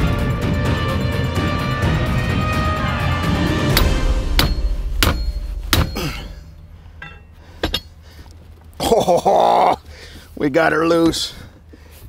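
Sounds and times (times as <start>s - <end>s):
background music: 0.0s - 7.0s
hammer striking metal: 3.7s - 8.0s.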